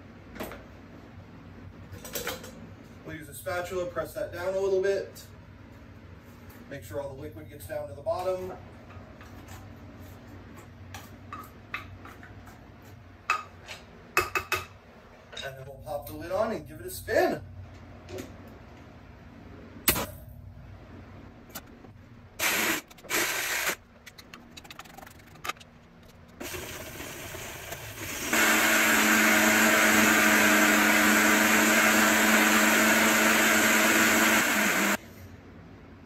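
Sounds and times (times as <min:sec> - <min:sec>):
blender motor running: 0:22.4 - 0:23.8, 0:26.4 - 0:35.0.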